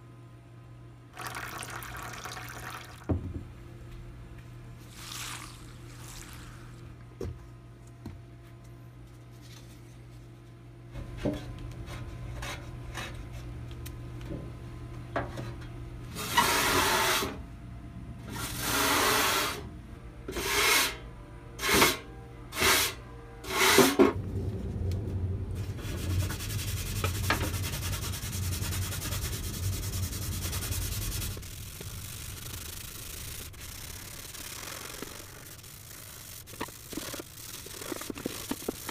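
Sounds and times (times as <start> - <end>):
brush scrubbing metal pan: 25.6 - 33.0
scouring pad rubbing: 25.6 - 38.9.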